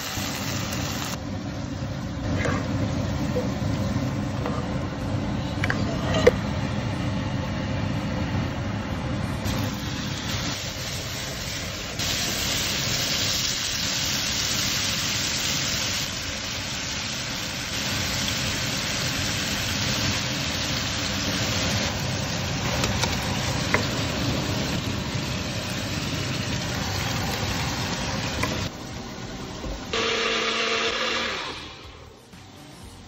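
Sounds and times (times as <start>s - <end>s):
chicken sizzling in oil: 0.0s - 1.2s, 9.5s - 28.7s.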